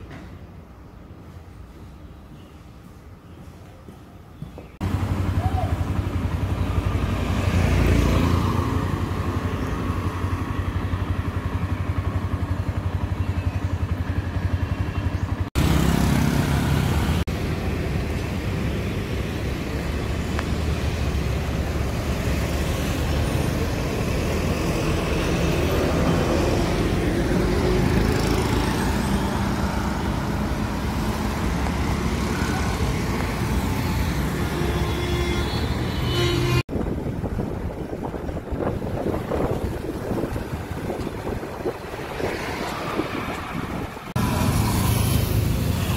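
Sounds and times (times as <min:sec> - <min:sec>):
road traffic noise: 0:00.0 - 0:45.9
motorcycle engine running: 0:04.8 - 0:07.8, 0:09.5 - 0:17.2.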